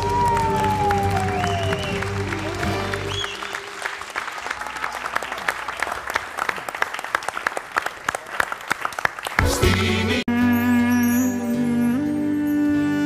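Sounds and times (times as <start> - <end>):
band music with held notes: 0.0 - 3.2, 9.4 - 13.0
audience clapping: 0.0 - 10.2.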